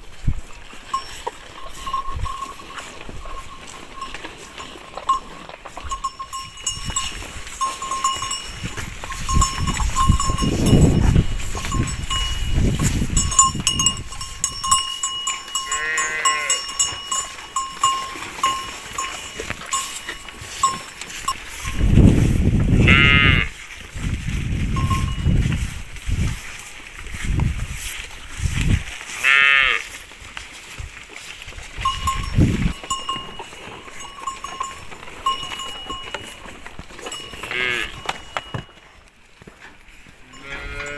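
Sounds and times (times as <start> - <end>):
cattle herd: 0.0 - 40.9
bell clinking: 0.9 - 21.9, 24.8 - 25.4, 31.8 - 38.7
calf bleating: 15.6 - 17.0, 22.7 - 23.6, 29.2 - 29.9, 37.4 - 38.2, 40.2 - 40.9.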